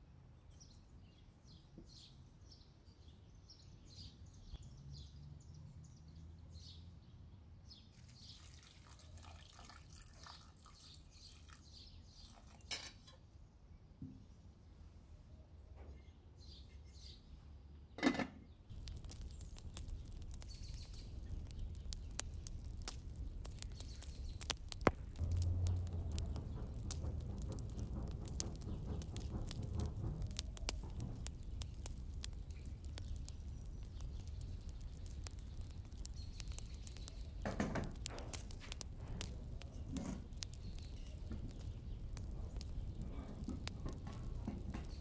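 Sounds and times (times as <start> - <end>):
charcoal fire crackling: 7.9 - 12.9, 18.6 - 45.0
metal cookware clinking: 12.7 - 13.2
metal pot set down: 12.7 - 13.2, 18.0 - 18.4
low air rumble from fanning: 18.7 - 45.0.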